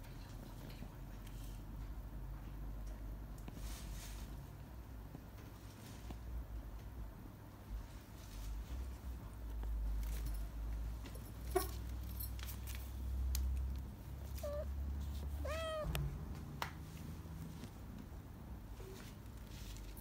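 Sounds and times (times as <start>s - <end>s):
steady low rumble: 13.3s - 18.7s
cat meowing: 14.3s - 16.0s.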